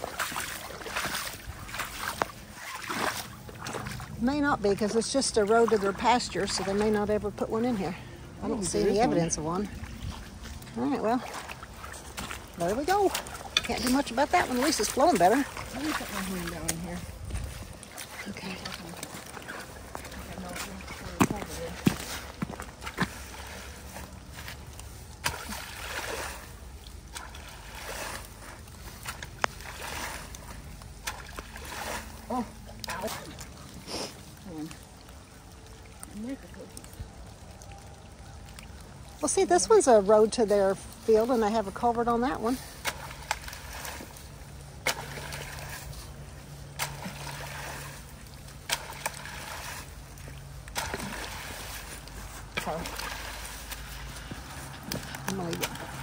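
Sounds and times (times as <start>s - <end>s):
water swishing and sloshing: 0.0s - 56.0s.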